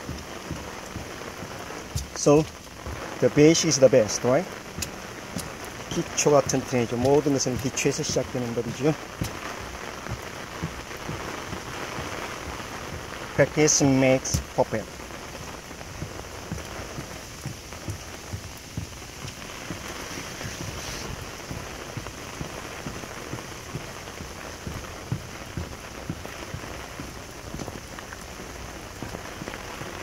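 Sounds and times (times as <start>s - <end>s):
close rain drop taps: 0.0s - 30.0s
steady rain falling: 0.0s - 30.0s.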